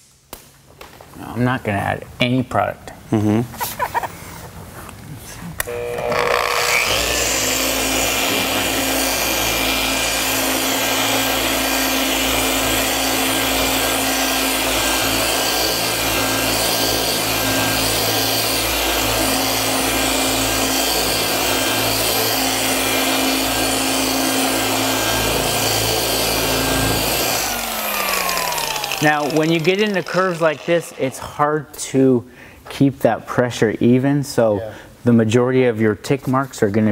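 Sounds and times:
polisher motor hum with whine: 5.6s - 31.2s
polishing pad rushing on paint: 6.7s - 31.5s.

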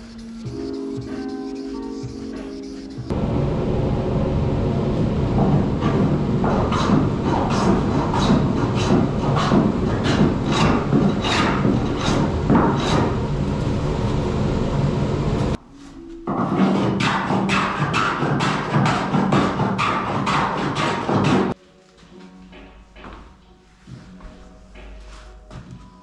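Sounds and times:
hand plane shaving wood: 6.4s - 13.2s, 16.5s - 21.6s.

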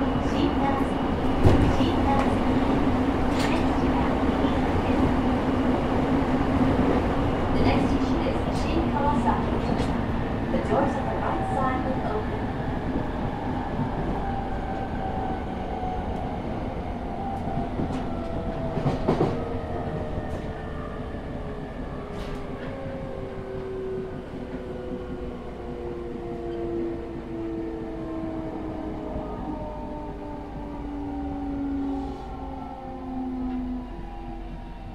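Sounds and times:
train running rumble: 0.0s - 34.9s.

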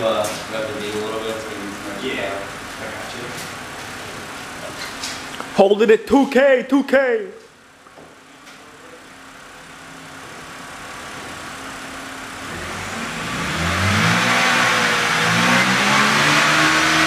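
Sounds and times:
car engine revving: 12.2s - 17.0s.

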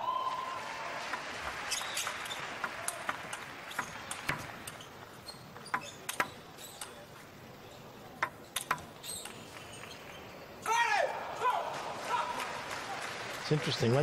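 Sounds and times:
crowd applauding: 0.0s - 4.6s, 11.3s - 14.0s
table tennis ball clicks: 1.8s - 7.0s, 8.2s - 9.4s.

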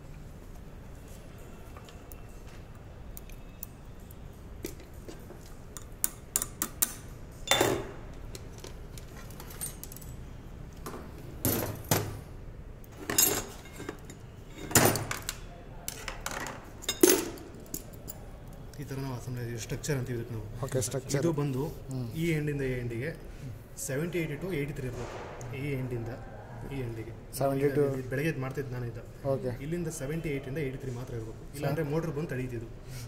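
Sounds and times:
metal chain clinking and rattling: 9.2s - 10.2s, 13.0s - 15.1s.

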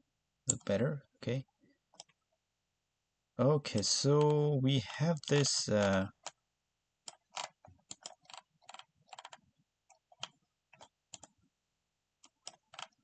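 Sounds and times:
scroll wheel ticking: 3.7s - 6.4s, 7.0s - 11.4s, 12.2s - 13.0s
computer mouse clicking: 7.0s - 11.4s, 12.2s - 13.0s.

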